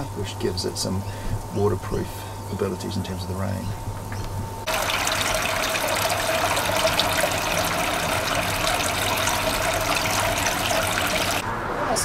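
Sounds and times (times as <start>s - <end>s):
water pouring into a tank: 4.6s - 11.4s.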